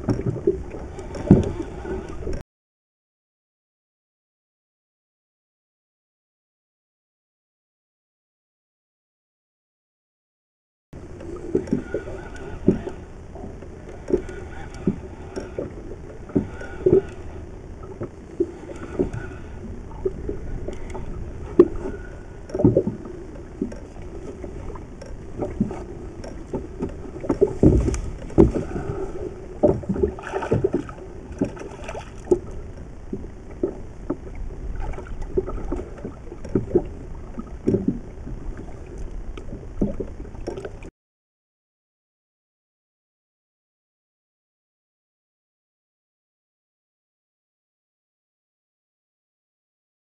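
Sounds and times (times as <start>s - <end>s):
boat knocks and thumps: 0.0s - 2.4s, 17.9s - 40.9s
water slapping boat hull: 0.0s - 2.4s, 11.0s - 40.9s.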